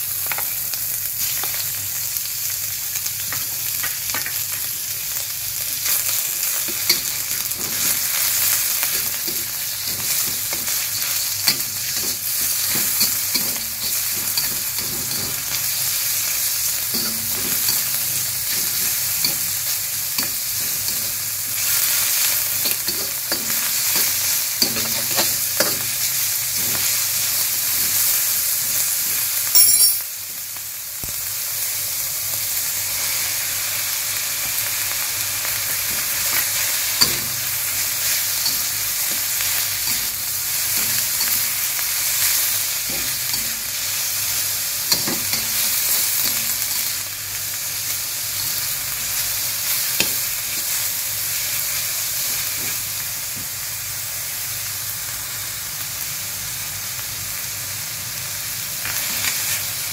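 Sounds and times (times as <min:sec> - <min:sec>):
food sizzling in a wok: 0:00.0 - 0:59.9
metal spatula scraping wok: 0:06.6 - 0:30.0, 0:35.9 - 0:44.2, 0:44.8 - 0:47.0.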